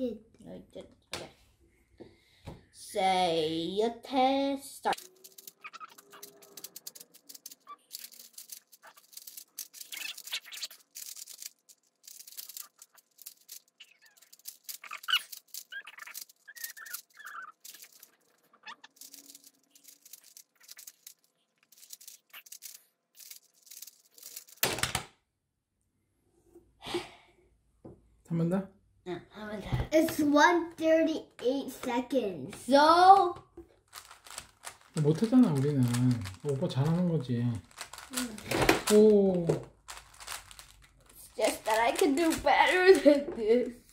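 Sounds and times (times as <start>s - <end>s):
plastic puzzle cube clicking: 4.9s - 25.0s, 33.9s - 36.5s, 37.6s - 39.0s, 39.9s - 40.7s.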